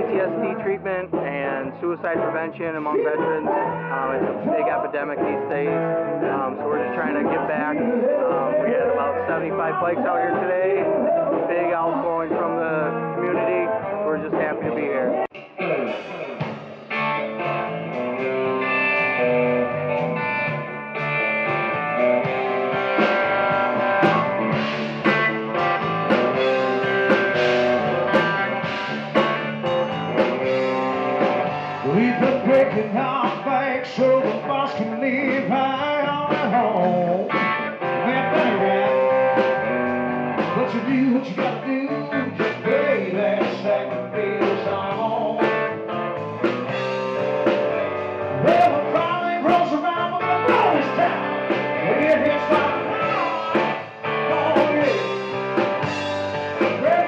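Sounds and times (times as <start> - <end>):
man singing: 0.0 - 15.3, 31.8 - 45.7, 48.3 - 55.3, 56.6 - 57.0
bass guitar: 0.0 - 57.0
drums: 0.0 - 57.0
electric guitar: 0.0 - 57.0.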